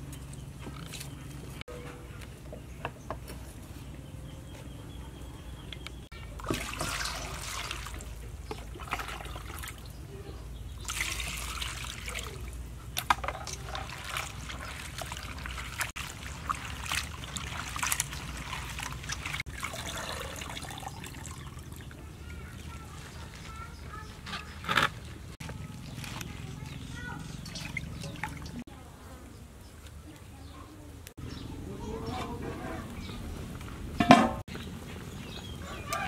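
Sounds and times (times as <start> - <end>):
water splashing and sloshing: 6.0 - 28.7
water pouring from a jug: 6.3 - 9.9, 10.8 - 23.9, 25.1 - 28.6.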